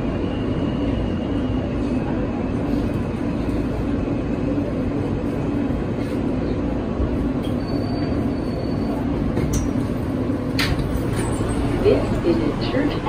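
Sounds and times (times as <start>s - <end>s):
subway car wheels rumbling: 0.0s - 13.0s.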